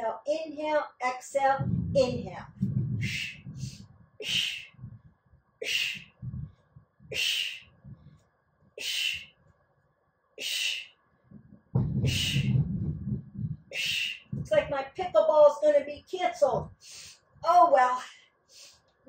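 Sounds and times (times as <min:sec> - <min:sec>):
low sound: 0:01.6 - 0:08.2, 0:11.3 - 0:15.3
woman breathing hard: 0:08.8 - 0:09.3, 0:16.8 - 0:17.2.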